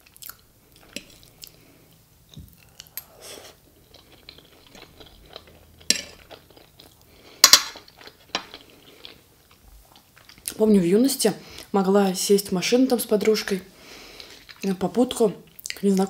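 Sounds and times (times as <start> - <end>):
person chewing food: 0.0 - 10.6, 14.0 - 14.7.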